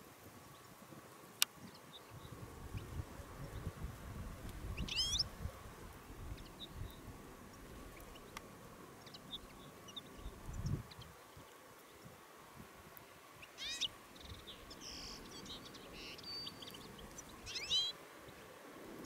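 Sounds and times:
bird call: 4.8 - 5.2, 13.5 - 18.0
faint high bird chips: 13.6 - 17.9.

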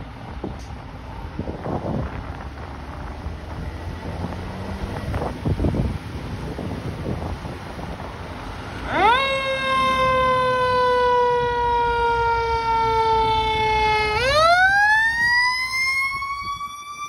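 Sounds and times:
fire engine siren wailing: 4.0 - 17.0.

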